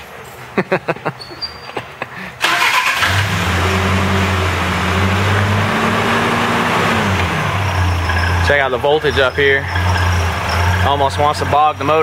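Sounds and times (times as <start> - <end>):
truck engine starting and running: 2.4 - 12.0.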